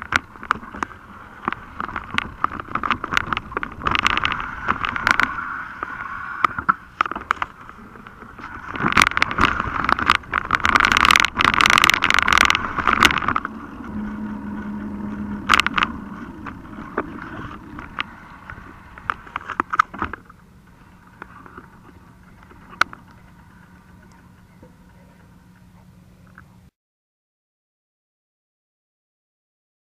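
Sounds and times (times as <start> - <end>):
rushing noise: 0.8 - 24.5.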